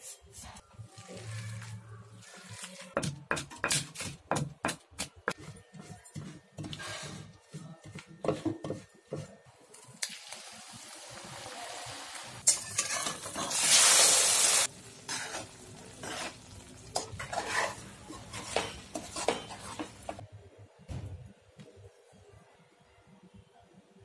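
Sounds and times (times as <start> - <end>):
spoon scraping and stirring in pot: 0.0 - 4.3, 5.3 - 9.4, 12.4 - 13.7, 15.0 - 20.2
omelette sizzling in a pan: 10.0 - 19.8
ladle scraping and clinking: 17.0 - 20.2.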